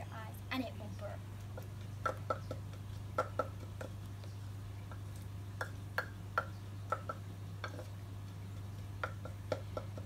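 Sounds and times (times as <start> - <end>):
pestle knocking in a mortar: 1.6 - 8.0, 9.0 - 10.0.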